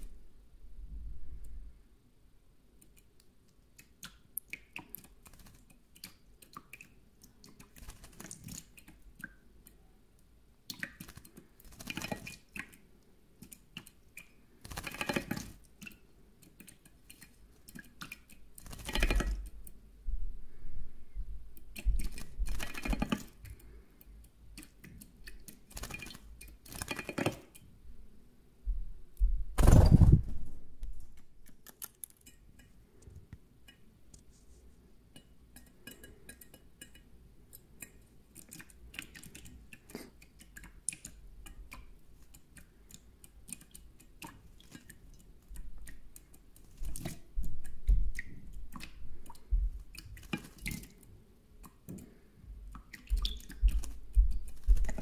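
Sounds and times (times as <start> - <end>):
clicks and drips on metal bowl: 3.8 - 9.8, 10.6 - 12.8, 13.4 - 19.8, 21.6 - 27.6, 33.6 - 33.9, 35.1 - 55.0.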